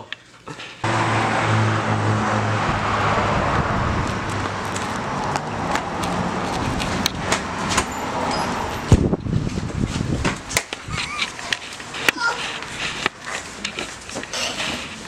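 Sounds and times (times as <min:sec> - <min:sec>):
low hum: 0:00.8 - 0:08.2
running footsteps on pavement: 0:03.9 - 0:14.3.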